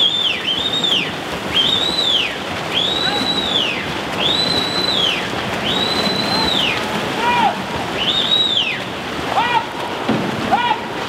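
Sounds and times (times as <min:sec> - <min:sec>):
whistle-like rising tone: 0:00.0 - 0:06.8, 0:08.0 - 0:08.8
swimmers splashing water: 0:00.0 - 0:11.0.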